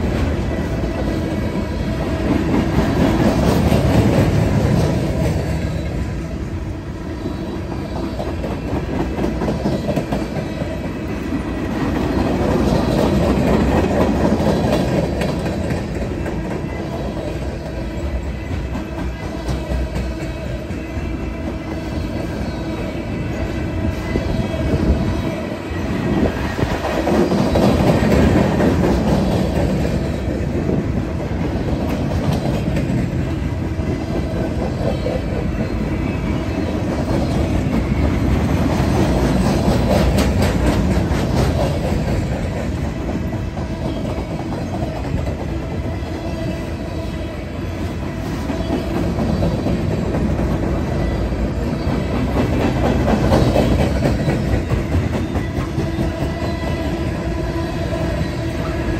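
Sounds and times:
clickety-clack over rail joints: 0.0 - 6.3, 7.2 - 58.9
train wheels rumbling on rail: 0.0 - 58.9.

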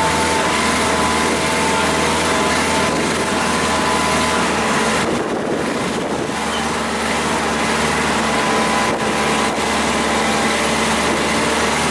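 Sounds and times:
boat engine droning: 0.0 - 11.9
wind rushing over microphone: 4.6 - 6.5.

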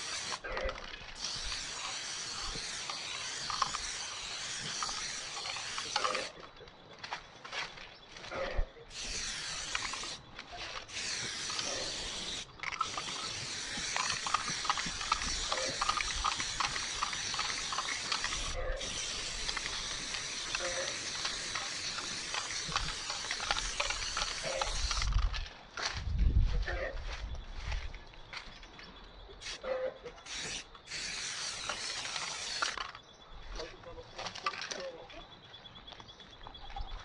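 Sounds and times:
spray paint can hissing: 0.0 - 6.3, 8.9 - 10.2, 10.8 - 25.3, 30.2 - 33.0.

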